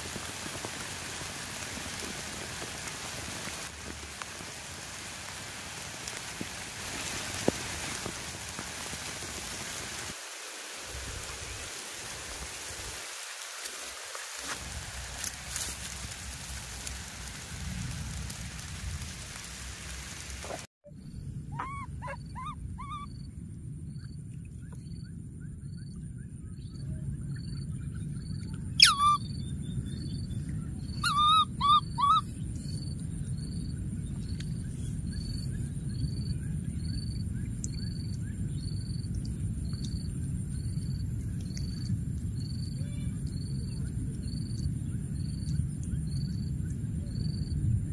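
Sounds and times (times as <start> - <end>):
steady hiss: 0.0 - 20.7
short falling animal calls: 21.5 - 23.1, 28.8 - 29.2, 31.0 - 32.2.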